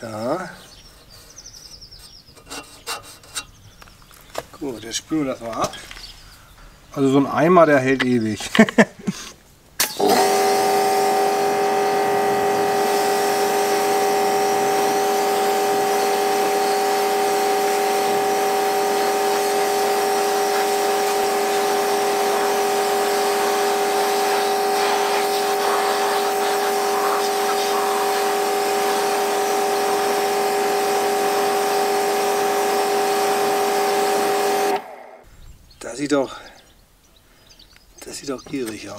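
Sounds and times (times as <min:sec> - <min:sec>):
water jet spraying metal blades: 0:09.8 - 0:35.0
pressure washer whine: 0:09.8 - 0:35.3.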